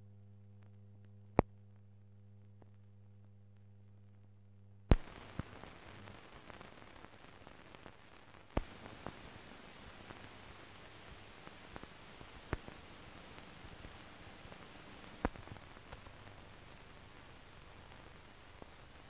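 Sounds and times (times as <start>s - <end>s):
electrical hum: 0.0s - 19.0s
loud pop: 4.9s - 5.5s
hiss with faint crackles: 4.9s - 19.0s.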